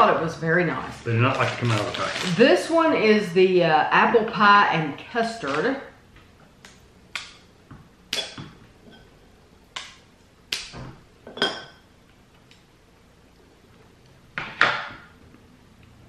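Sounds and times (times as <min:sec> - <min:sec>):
scissors snipping plastic wrapper: 0:01.4 - 0:02.4.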